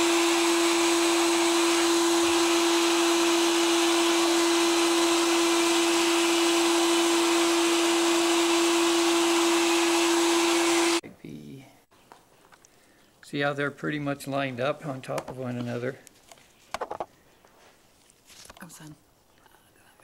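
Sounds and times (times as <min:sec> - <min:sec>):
electric dental float humming: 0:00.0 - 0:11.0.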